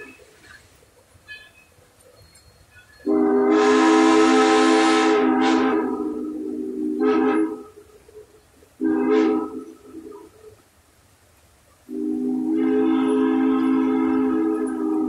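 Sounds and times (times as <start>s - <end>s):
steam locomotive whistle blowing: 1.2s - 1.8s, 2.6s - 10.3s, 11.9s - 15.0s.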